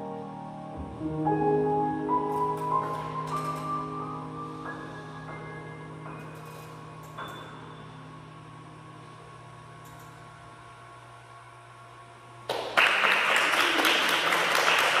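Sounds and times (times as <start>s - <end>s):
audience applause: 12.5s - 15.0s.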